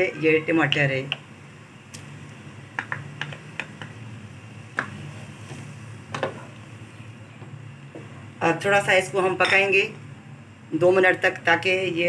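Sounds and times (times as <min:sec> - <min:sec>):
spoon tapping cooking pot: 0:02.8 - 0:04.0.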